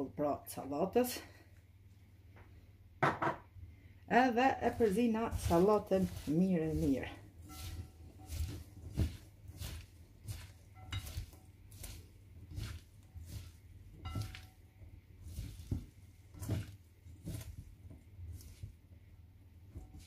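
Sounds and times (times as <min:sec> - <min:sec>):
rustle and squish of salad leaves: 0:04.4 - 0:18.9, 0:19.6 - 0:20.0.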